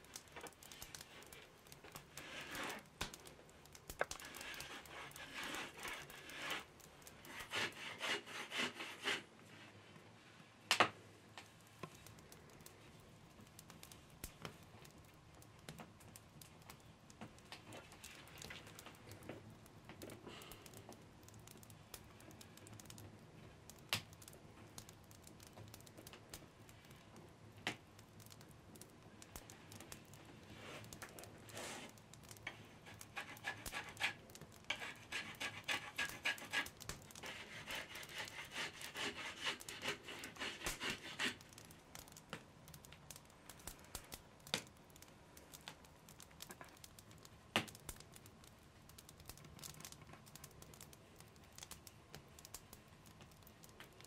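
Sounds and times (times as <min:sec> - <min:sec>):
rapid scratching strokes: 0:02.1 - 0:02.9, 0:04.2 - 0:09.3, 0:32.8 - 0:41.4.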